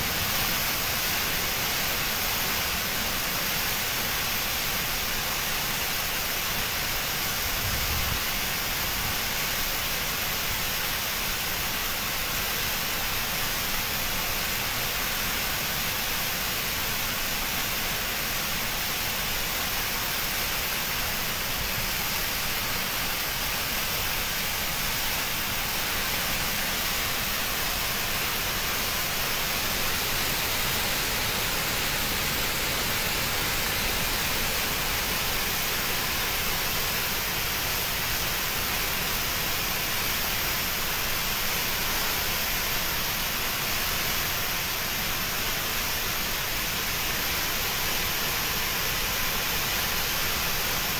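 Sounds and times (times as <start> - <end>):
hissing rush of water: 0.0 - 50.9.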